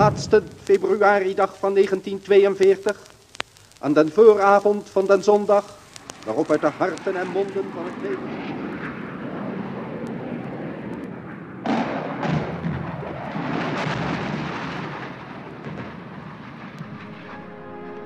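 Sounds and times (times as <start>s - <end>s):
loud blast: 0.0s - 2.8s, 10.6s - 18.0s
war noise rumble: 0.0s - 18.0s.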